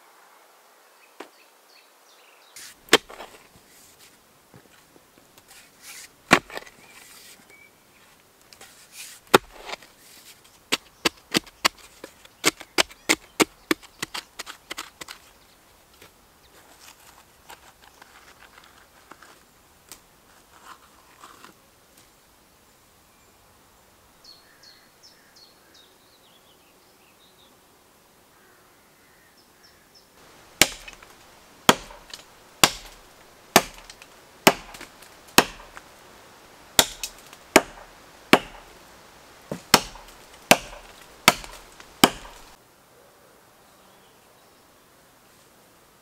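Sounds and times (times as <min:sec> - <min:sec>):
digging tool striking dry soil: 0:02.6 - 0:03.5, 0:05.8 - 0:07.0, 0:08.6 - 0:09.9, 0:10.7 - 0:15.3, 0:30.2 - 0:35.9, 0:36.8 - 0:38.8, 0:39.5 - 0:42.6
tool scraping soil: 0:02.6 - 0:04.8, 0:05.4 - 0:15.4, 0:16.0 - 0:19.4, 0:20.3 - 0:21.6, 0:30.2 - 0:35.9.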